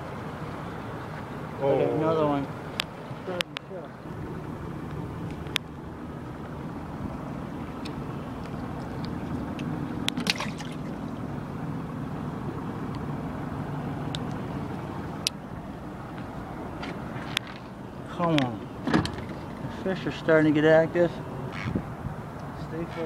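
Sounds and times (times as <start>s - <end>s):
outboard motor idling: 0.0s - 21.1s.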